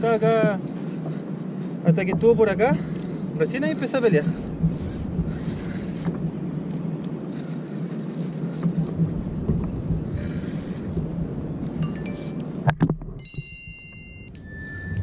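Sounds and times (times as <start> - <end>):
water noise: 0.0 - 15.0
wind on microphone: 0.0 - 15.0
faint clicks: 0.6 - 2.2, 2.9 - 3.2, 4.2 - 11.8
low rumble: 4.4 - 6.4.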